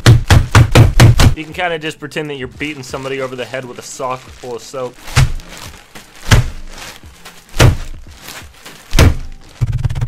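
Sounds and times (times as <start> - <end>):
bag slammed on desk: 5.1 - 5.4, 6.2 - 6.6, 7.5 - 8.0, 8.9 - 9.4.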